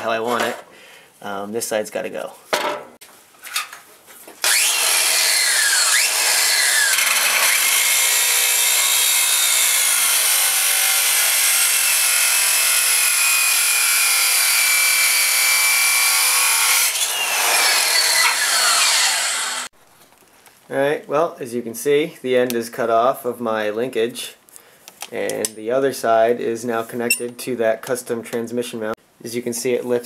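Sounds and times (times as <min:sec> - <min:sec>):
angle grinder cutting steel: 0:04.4 - 0:19.7.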